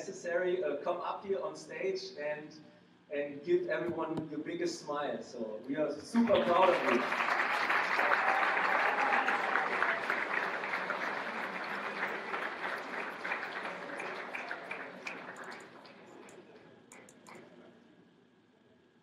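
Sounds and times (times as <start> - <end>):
audience applauding: 6.2 - 17.4.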